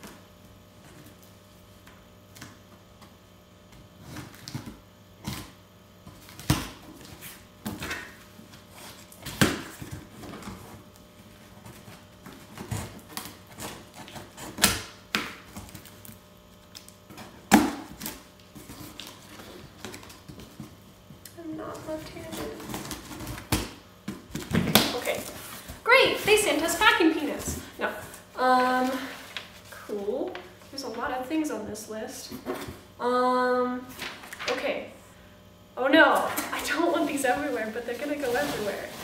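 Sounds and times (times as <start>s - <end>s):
scissors cutting tape and cardboard: 12.2s - 15.8s.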